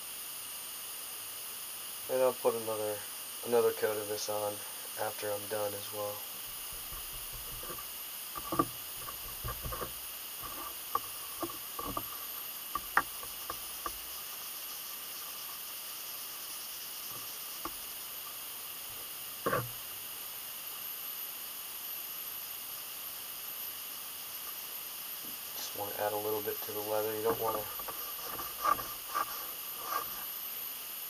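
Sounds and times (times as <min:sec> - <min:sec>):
background hiss: 0:00.0 - 0:31.0
light clicks and knocks: 0:08.4 - 0:14.0, 0:19.4 - 0:19.7
leather sheath rubbed with cloth: 0:27.4 - 0:30.4.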